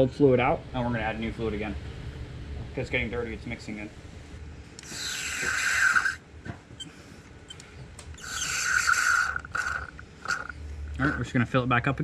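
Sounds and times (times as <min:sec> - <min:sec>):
sucking hisses of suction: 0:04.8 - 0:06.2, 0:08.2 - 0:11.2.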